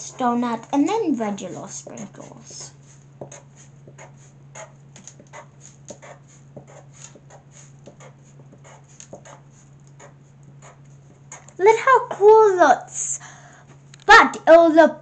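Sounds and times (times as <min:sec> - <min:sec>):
faint steady hum: 0:00.0 - 0:15.0
marker tapping on paper: 0:03.2 - 0:11.6.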